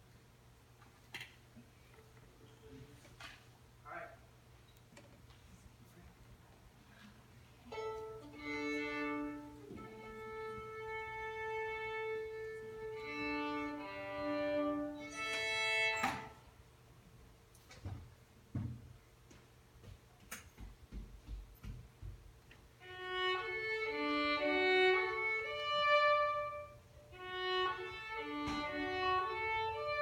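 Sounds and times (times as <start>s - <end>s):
solo violin playing: 7.7s - 16.4s, 22.8s - 30.0s.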